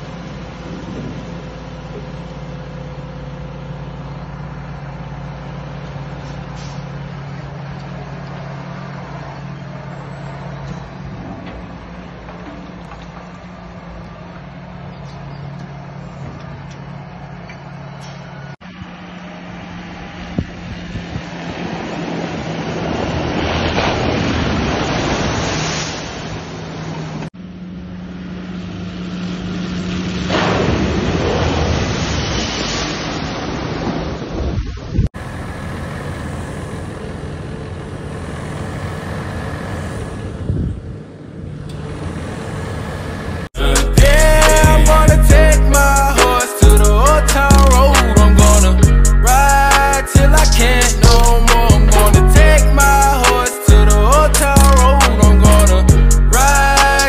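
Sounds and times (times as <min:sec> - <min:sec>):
diesel tractor engine: 0:00.0 - 0:57.0
rushing water: 0:21.3 - 0:27.3.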